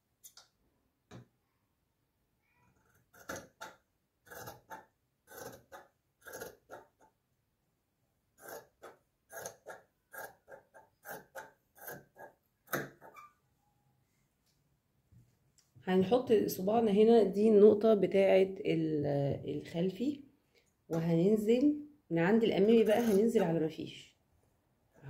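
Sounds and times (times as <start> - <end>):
shears snipping fabric: 22.8 - 23.5.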